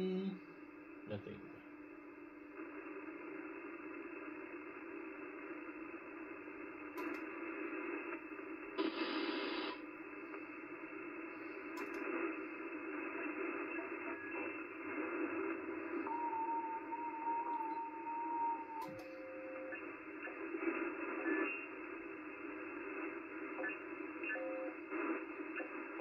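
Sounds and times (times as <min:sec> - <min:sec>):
radio band hiss: 0:01.1 - 0:01.6, 0:02.6 - 0:17.0, 0:19.8 - 0:26.0
carrier whistle tone: 0:16.1 - 0:19.8.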